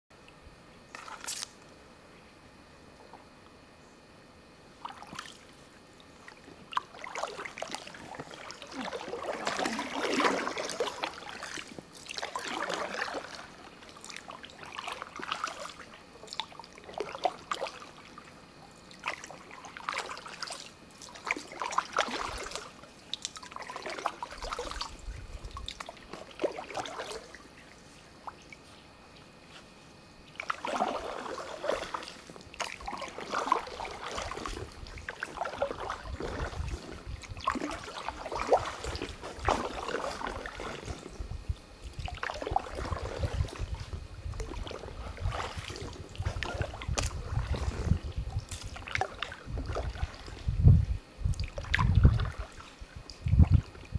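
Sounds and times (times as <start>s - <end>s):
water trickling off paddle: 4.8s - 18.2s, 18.9s - 28.6s, 30.2s - 41.1s
paddle strokes swishing in water: 4.8s - 53.9s.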